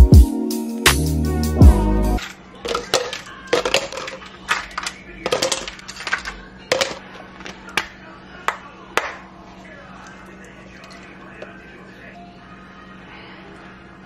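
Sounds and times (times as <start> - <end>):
ice cubes clinking into plastic tumbler: 2.2 - 7.6.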